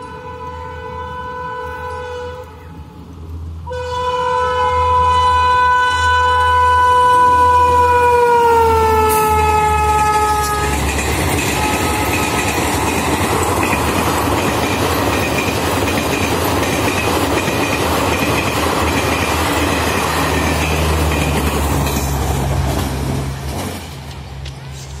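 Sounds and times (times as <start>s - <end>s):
train horn blast: 0.0s - 10.8s, 11.5s - 12.4s
train wheels on rails: 5.9s - 25.0s.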